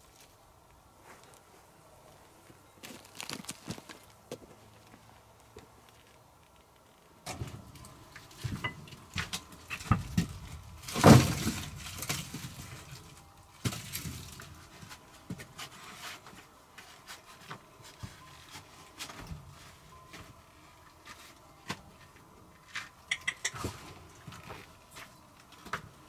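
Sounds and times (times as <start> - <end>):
footsteps on stone: 2.8 - 5.0.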